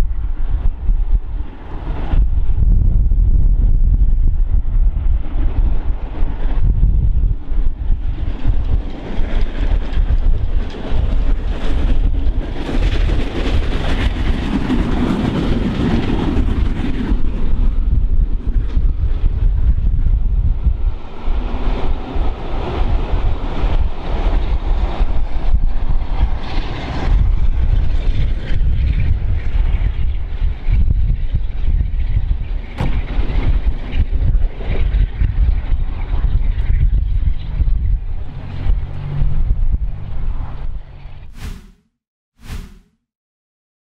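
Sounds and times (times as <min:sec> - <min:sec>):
wind buffeting microphone: 0:00.0 - 0:41.6
steam train rumbling past: 0:07.6 - 0:19.8, 0:20.6 - 0:31.8, 0:32.5 - 0:41.6
steam train passing: 0:08.0 - 0:17.8.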